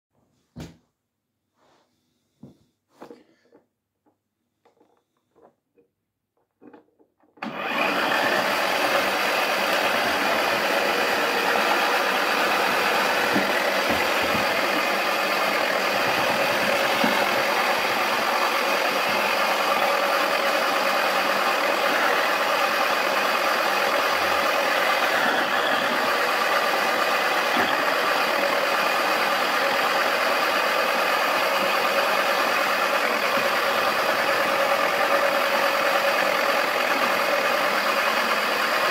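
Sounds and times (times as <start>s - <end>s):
toy washing machine whirring: 4.6s - 38.9s.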